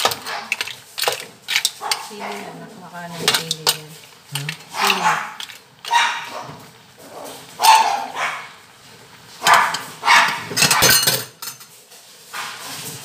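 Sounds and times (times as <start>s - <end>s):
dog barking: 4.7s - 6.6s, 7.6s - 8.6s, 9.4s - 11.0s.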